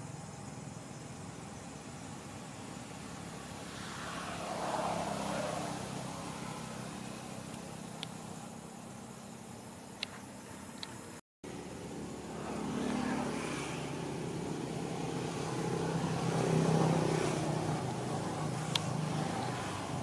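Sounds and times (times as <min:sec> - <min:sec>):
engine humming steadily: 0:00.0 - 0:20.0.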